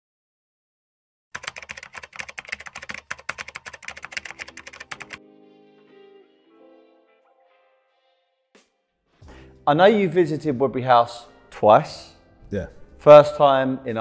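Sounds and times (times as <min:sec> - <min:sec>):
keyboard typing clicks: 0:01.4 - 0:05.2.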